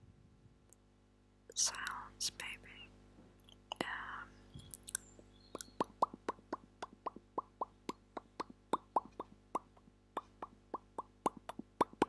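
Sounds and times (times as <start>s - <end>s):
wet mouth clicks: 3.4s - 12.0s.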